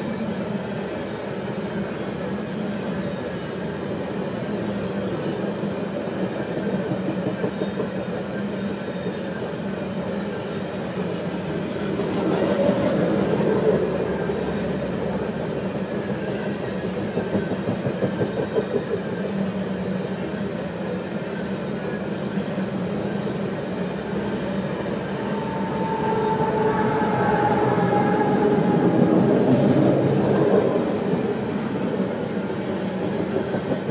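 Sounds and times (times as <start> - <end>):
train wheels rumbling and clicking: 5.4 - 33.9
steady tone: 24.1 - 30.7.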